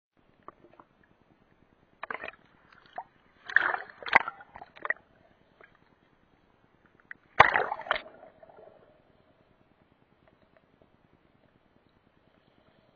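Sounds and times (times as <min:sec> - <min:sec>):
water sloshing and splashing: 0:02.0 - 0:05.8, 0:07.3 - 0:08.9.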